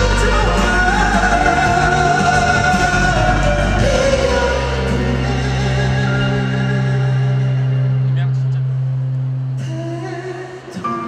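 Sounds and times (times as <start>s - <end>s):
men singing a ballad: 0.0s - 8.0s
instrumental accompaniment: 0.0s - 9.3s.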